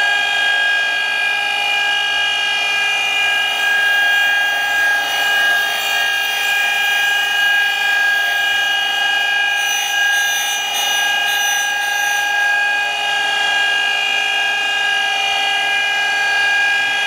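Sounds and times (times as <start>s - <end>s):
grinder high-pitched whine: 0.0s - 17.0s
grinding wheel hissing on steel: 2.7s - 13.2s.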